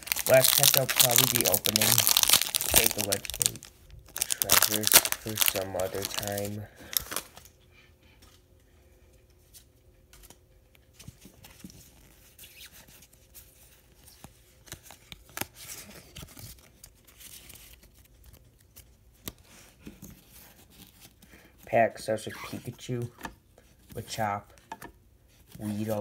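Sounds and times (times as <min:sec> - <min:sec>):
card pack rustling: 0:00.0 - 0:07.5.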